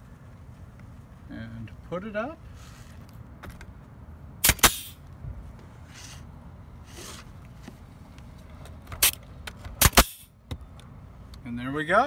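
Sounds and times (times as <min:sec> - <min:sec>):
nail gun firing: 0:04.4 - 0:05.0, 0:09.0 - 0:09.2, 0:09.8 - 0:10.3.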